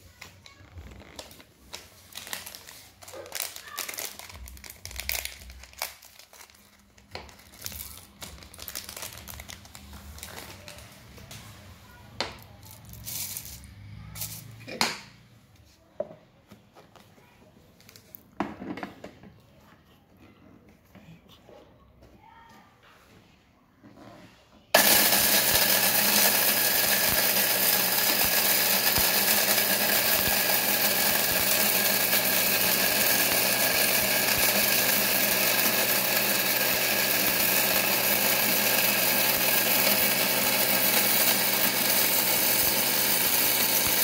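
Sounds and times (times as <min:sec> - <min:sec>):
packet crinkling and tearing: 0:00.7 - 0:10.9.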